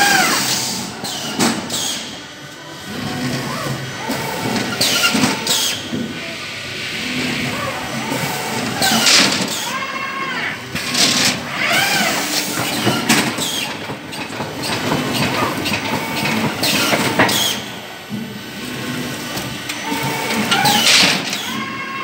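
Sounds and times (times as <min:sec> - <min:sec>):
packing machine clattering: 0:08.1 - 0:09.8, 0:10.7 - 0:22.0.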